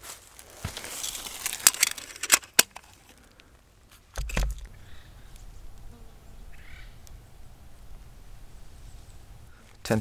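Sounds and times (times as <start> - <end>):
camera handling clicks and rattles: 1.4 - 3.2.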